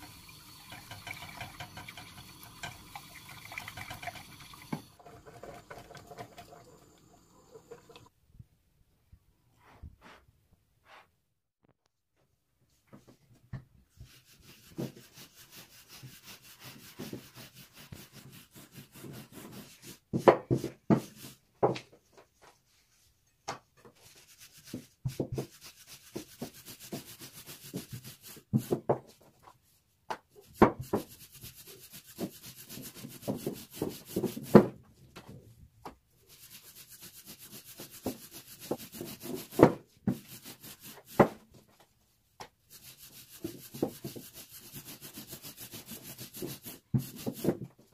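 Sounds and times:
rolling pin swishing on dough: 0:30.3 - 0:34.7, 0:36.2 - 0:41.8, 0:42.4 - 0:47.7.

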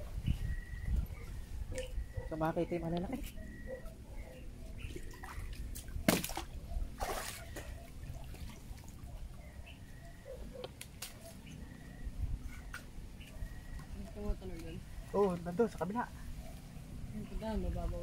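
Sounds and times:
water sloshing around wading person: 0:03.4 - 0:11.5
loud water splashes: 0:06.0 - 0:07.7.

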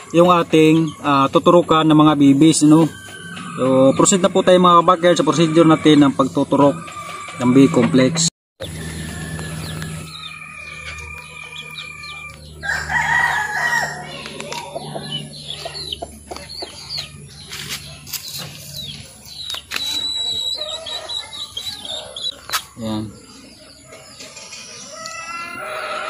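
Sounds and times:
chickens clucking: 0:00.0 - 0:26.0
rooster crowing: 0:02.6 - 0:16.0, 0:19.9 - 0:22.6, 0:24.8 - 0:26.0.

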